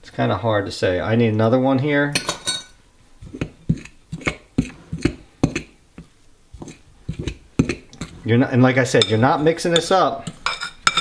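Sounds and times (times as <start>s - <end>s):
fork scraping a mixing bowl: 3.2s - 11.0s.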